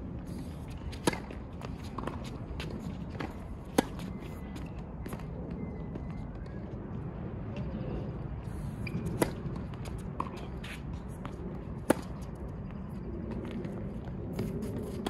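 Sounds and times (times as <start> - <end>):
tennis ball bouncing: 0.9 - 4.1.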